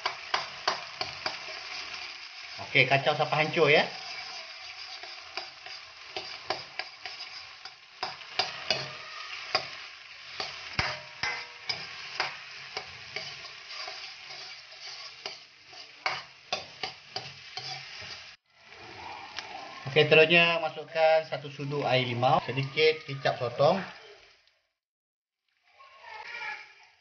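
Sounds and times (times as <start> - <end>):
food sizzling in hot oil: 0.0 - 24.4, 25.5 - 27.0
metal ladle scraping a wok: 3.5 - 18.4.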